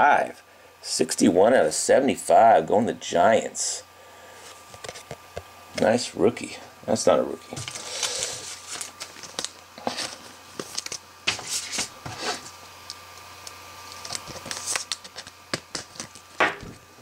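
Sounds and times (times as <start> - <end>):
cards and plastic sleeve rustling: 7.5 - 12.6, 13.4 - 16.6.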